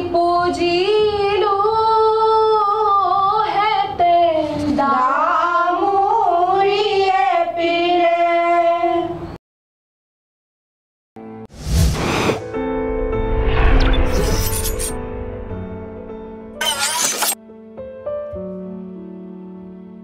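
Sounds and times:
woman singing with held notes: 0:00.0 - 0:09.3.

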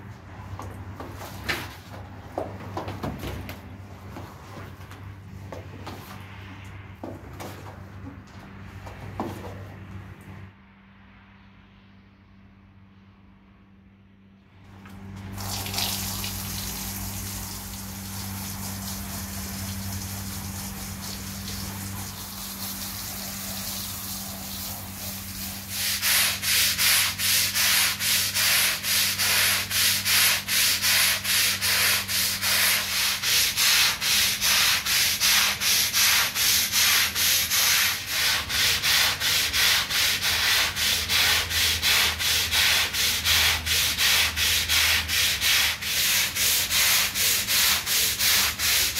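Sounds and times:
push broom scrubbing wet rug: 0:15.2 - 0:48.9.

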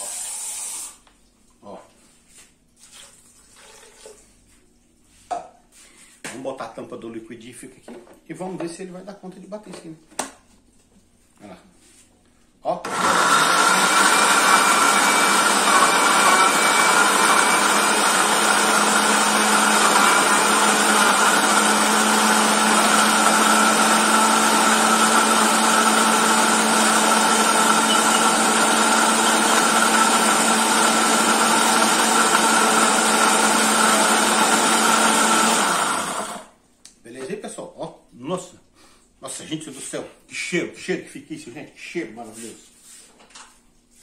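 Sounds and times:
blender motor whining: 0:12.8 - 0:36.5.

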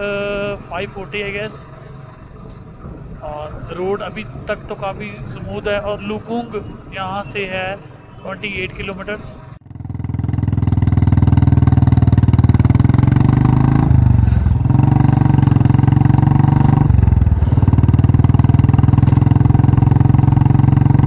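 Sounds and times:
motorcycle engine thumping: 0:09.6 - 0:21.0.

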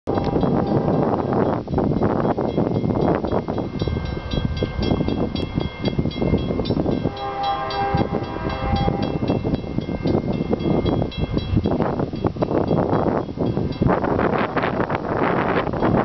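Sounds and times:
distant locomotive horn: 0:00.1 - 0:01.2, 0:06.9 - 0:09.6
wind buffeting microphone: 0:00.1 - 0:16.0.

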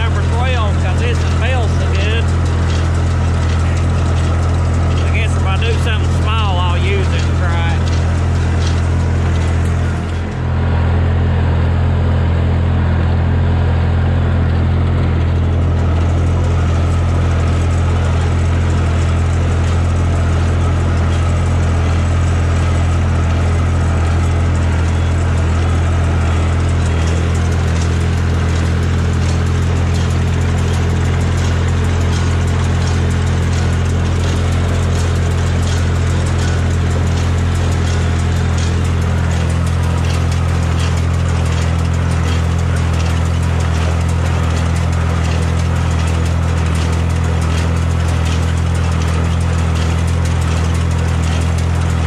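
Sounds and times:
tractor engine running: 0:00.0 - 0:52.0.

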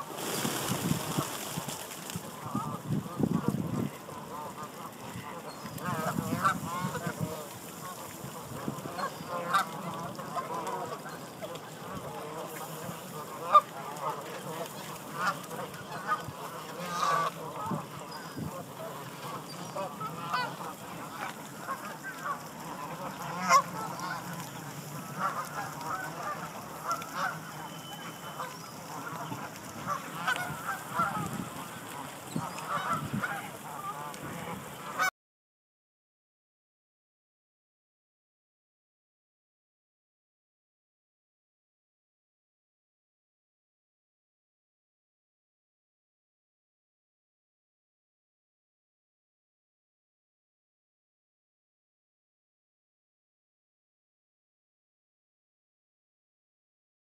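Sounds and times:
flock of geese honking: 0:00.0 - 0:35.1.

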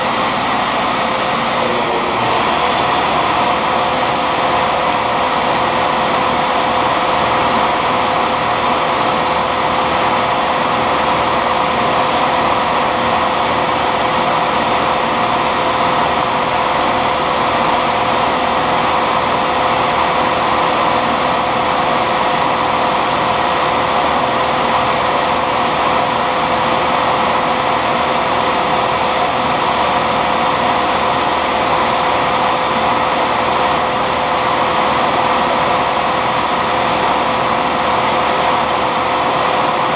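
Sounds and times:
lathe motor whine: 0:00.0 - 0:39.9
broad whooshing noise: 0:00.1 - 0:05.2.

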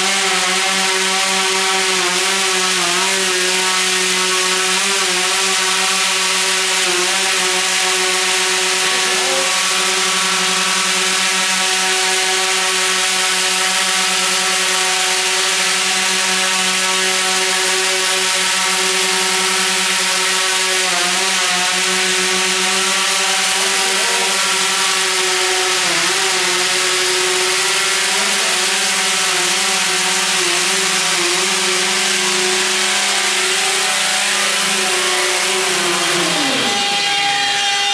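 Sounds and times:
drone rotors buzzing hum: 0:27.7 - 0:37.9.

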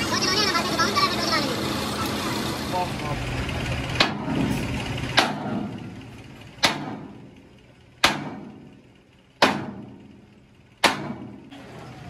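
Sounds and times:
hammer striking steel: 0:04.0 - 0:05.8, 0:06.6 - 0:07.3, 0:08.0 - 0:08.7, 0:09.4 - 0:10.1, 0:10.8 - 0:11.4.

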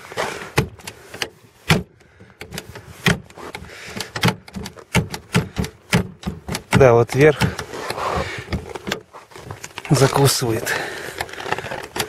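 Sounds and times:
car door handle clicks and knocks: 0:01.7 - 0:09.0.

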